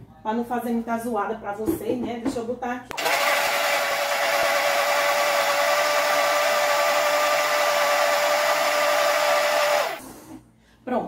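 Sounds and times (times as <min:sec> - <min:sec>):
blender motor whine: 0:02.9 - 0:10.1.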